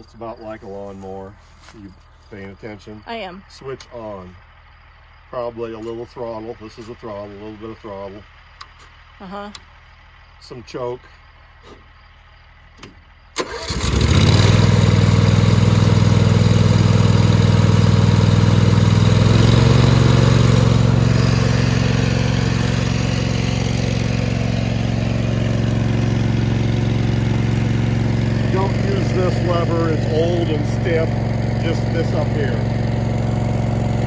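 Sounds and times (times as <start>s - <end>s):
small gasoline engine running: 13.4s - 34.0s.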